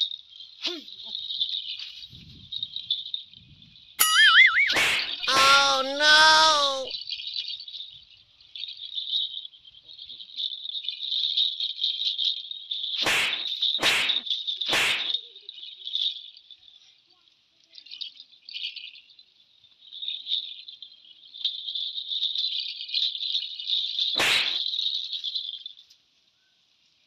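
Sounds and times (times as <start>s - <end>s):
ankle bells jingling: 4.0s - 6.8s
straw broom swishing on ground: 13.0s - 15.1s, 24.2s - 24.6s.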